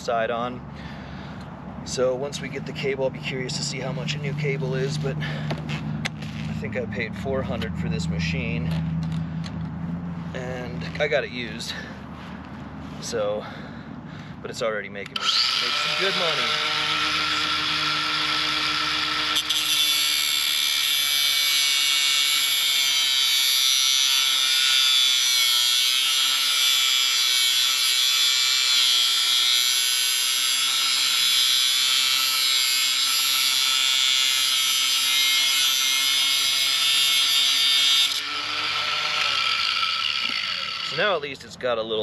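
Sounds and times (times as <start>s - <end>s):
grinding disc cutting steel: 2.0s - 9.6s, 15.0s - 41.6s
angle grinder motor whine: 15.0s - 41.2s.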